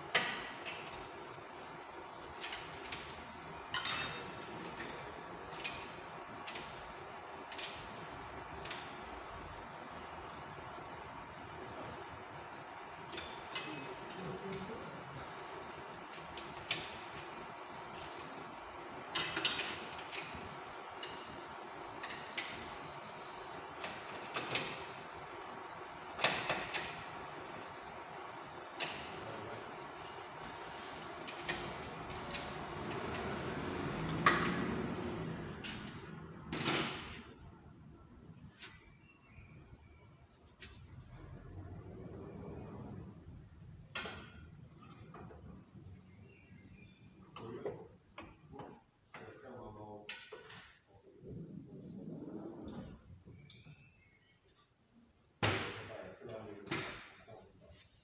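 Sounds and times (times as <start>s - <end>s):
steady background hum: 0.0s - 58.0s
metal tools clinking: 3.7s - 5.1s, 19.1s - 20.2s.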